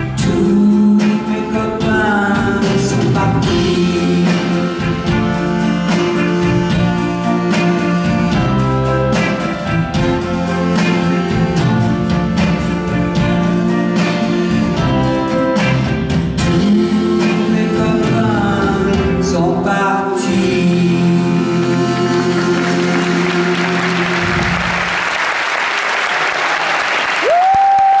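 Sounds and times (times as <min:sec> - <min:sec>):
live pop band and singers: 0:00.0 - 0:22.6
audience applauding: 0:21.7 - 0:28.0.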